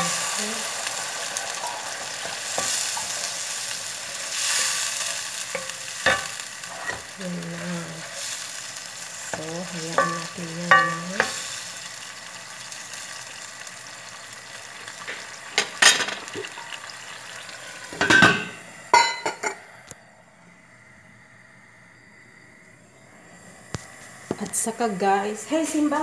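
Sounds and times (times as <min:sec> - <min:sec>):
pan sizzling: 0:00.0 - 0:19.8, 0:23.3 - 0:26.0
metal lid clanking: 0:15.6 - 0:16.7, 0:17.9 - 0:19.6.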